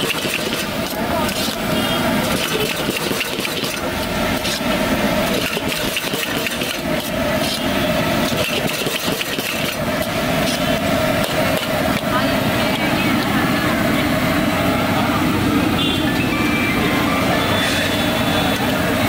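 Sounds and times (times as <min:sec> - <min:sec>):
ladle scraping a wok: 0:00.0 - 0:11.8
gas burner rushing: 0:00.0 - 0:19.0.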